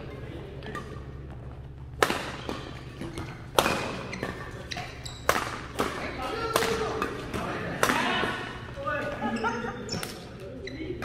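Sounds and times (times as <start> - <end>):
rackets striking shuttlecock: 0.6 - 8.6.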